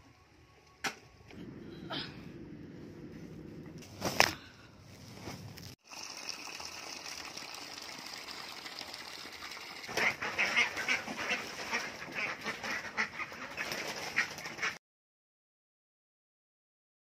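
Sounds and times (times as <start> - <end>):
water pouring from hose: 5.6 - 12.4
ducks quacking: 9.9 - 14.8.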